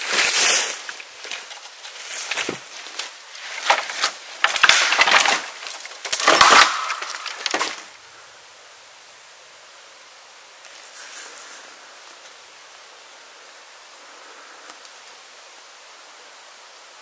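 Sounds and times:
dead tree cracking and splintering: 0.0s - 8.0s.

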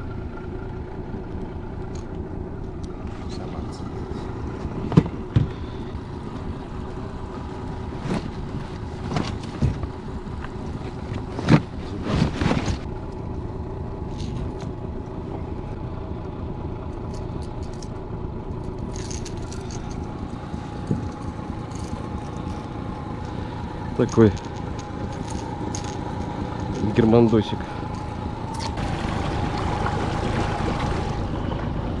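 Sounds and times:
outboard motor humming: 0.0s - 32.0s.

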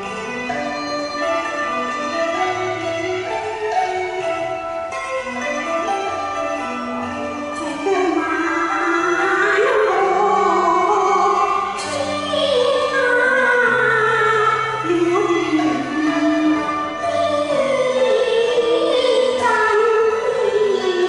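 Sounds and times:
instrumental accompaniment: 0.0s - 21.0s
woman singing opera-style: 7.6s - 21.0s.

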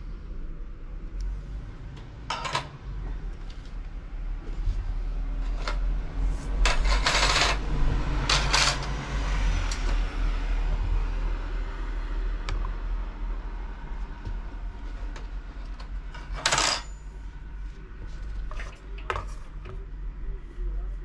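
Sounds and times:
steady low rumble: 0.0s - 16.2s
metal rotors clinking and scraping: 5.4s - 7.6s, 8.2s - 9.0s, 16.1s - 17.1s.

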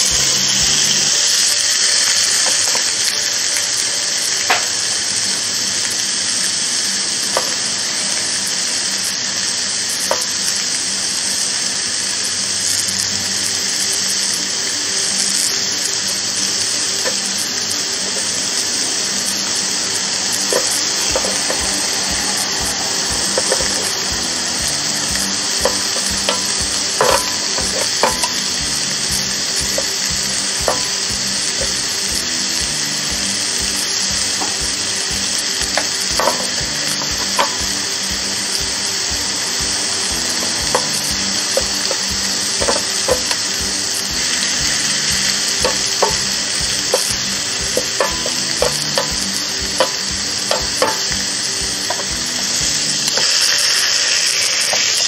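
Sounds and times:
meat sizzling on a grill: 0.0s - 55.0s
sharp clicks and pops: 19.2s - 55.0s.

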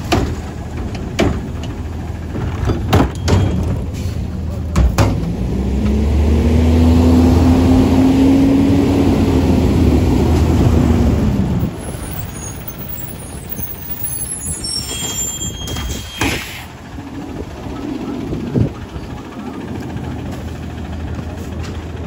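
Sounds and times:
garbage truck engine revving: 0.0s - 12.4s
high squeaks: 11.8s - 16.7s.

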